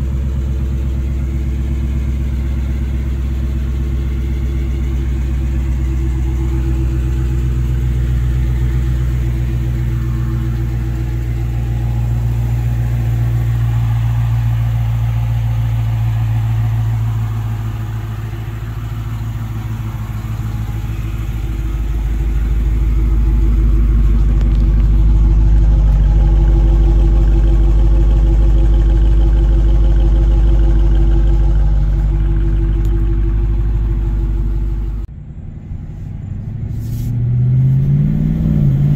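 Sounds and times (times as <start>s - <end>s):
car engine idling: 0.0s - 37.2s.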